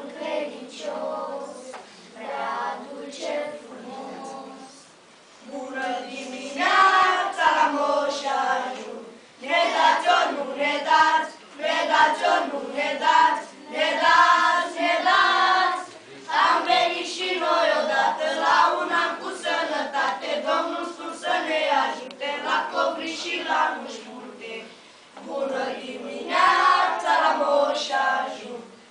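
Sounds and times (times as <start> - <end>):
children's choir singing a carol: 0.0 - 28.8.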